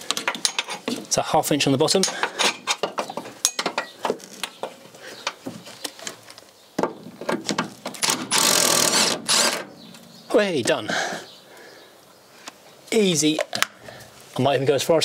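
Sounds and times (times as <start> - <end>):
metal hand tools clinking: 0.1 - 1.0, 2.0 - 4.0.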